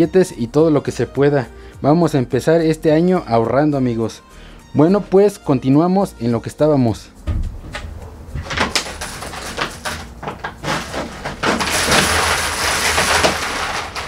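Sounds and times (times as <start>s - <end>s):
plastic jug crinkling: 8.4s - 14.0s
coins clinking and clattering: 8.5s - 14.0s.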